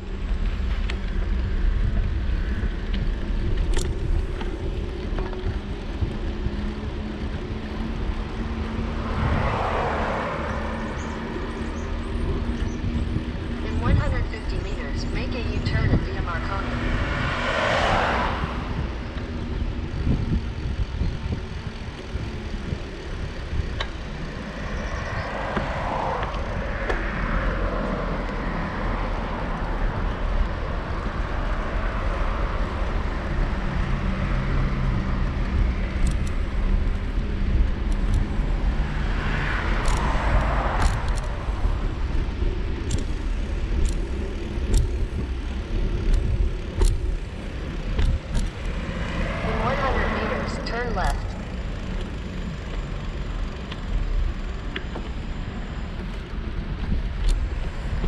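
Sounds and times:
road traffic passing: 0:00.0 - 0:58.0
wind and riding noise: 0:00.0 - 0:58.0
sharp clicks: 0:36.0 - 0:36.5, 0:42.8 - 0:45.4.

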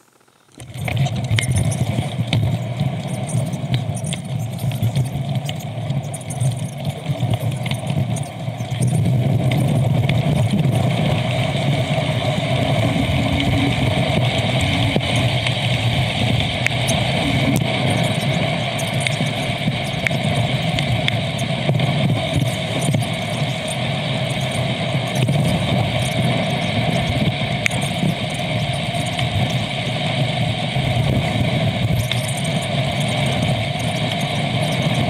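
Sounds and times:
wind on microphone: 0:00.6 - 0:35.0
vehicles passing: 0:11.0 - 0:21.2.

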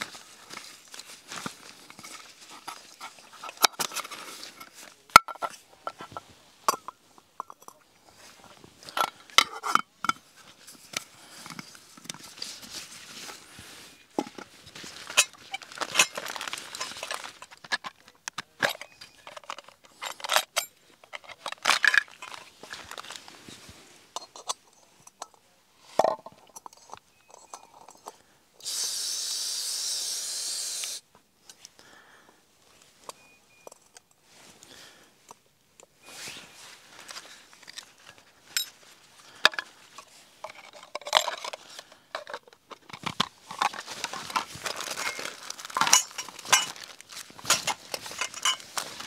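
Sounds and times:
metal camping pot clinking: 0:01.9 - 0:07.9, 0:08.8 - 0:12.2, 0:14.2 - 0:23.2, 0:24.1 - 0:25.4, 0:26.0 - 0:28.2, 0:37.6 - 0:49.0
steady gas hiss: 0:28.6 - 0:31.1.

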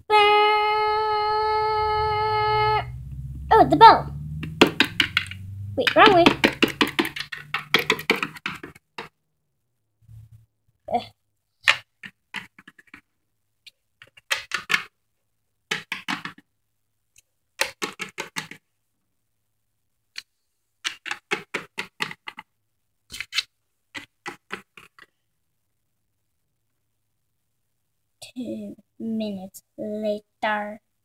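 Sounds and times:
plastic figurines tapping on shelf: 0:04.3 - 0:09.2, 0:11.6 - 0:13.1, 0:14.0 - 0:14.9, 0:15.7 - 0:16.4, 0:17.6 - 0:18.6, 0:20.8 - 0:22.5, 0:24.0 - 0:25.1.

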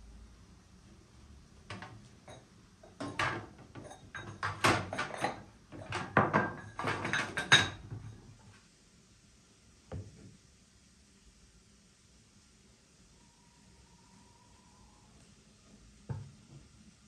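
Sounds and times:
clay bowls clinking and knocking: 0:01.8 - 0:08.2.

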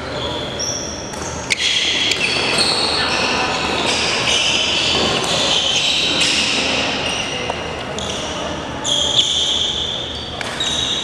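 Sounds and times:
shoes squeaking on wooden floor: 0:02.1 - 0:07.4.

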